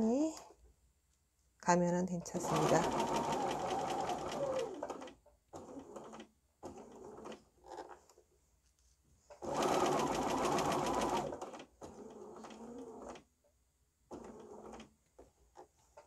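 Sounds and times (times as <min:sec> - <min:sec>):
sewing machine stitching: 0:02.3 - 0:08.0, 0:09.4 - 0:13.3, 0:14.1 - 0:15.7.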